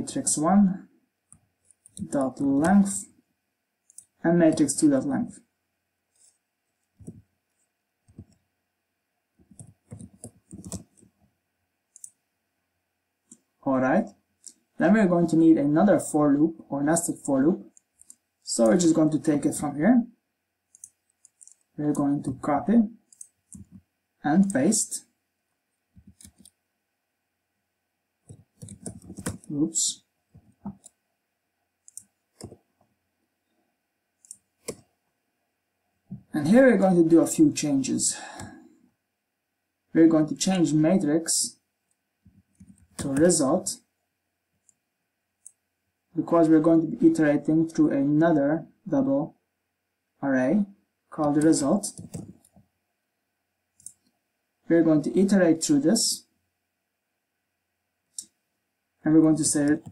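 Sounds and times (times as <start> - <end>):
mouse and keyboard clicks: 9.5 - 11.1, 20.7 - 21.7, 23.1 - 23.8, 26.0 - 26.6, 28.3 - 29.5, 31.8 - 32.6, 34.2 - 34.9, 42.6 - 43.4, 51.3 - 52.6
keyboard keystrokes: 28.3 - 29.5.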